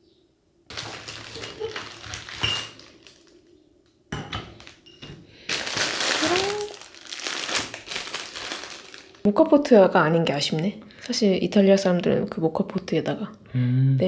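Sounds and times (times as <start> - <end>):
glass jars clinking: 0.7 - 3.3, 4.1 - 5.6
plastic wrappers crinkling: 0.7 - 3.6, 4.2 - 9.3.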